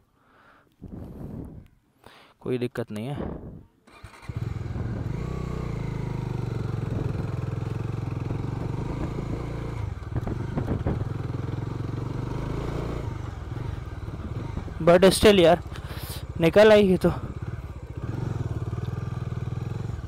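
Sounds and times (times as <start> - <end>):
motorcycle engine running: 4.0 - 20.0.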